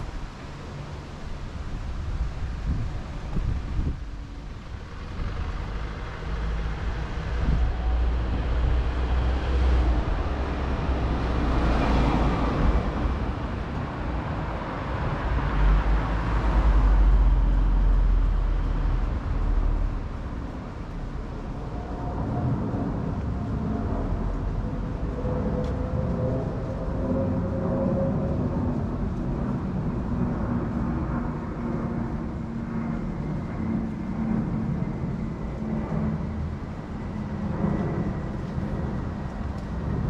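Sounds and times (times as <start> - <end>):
engine hum with held tone: 0.0 - 40.0
rumble of passing vehicles: 0.0 - 40.0.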